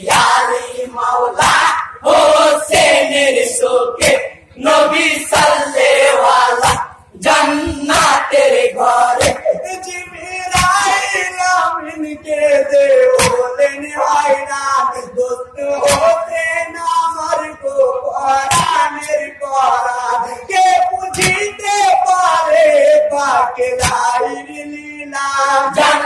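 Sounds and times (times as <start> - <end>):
men singing together: 0.0 - 26.0
hand strike keeping time: 9.1 - 9.6, 10.5 - 10.9.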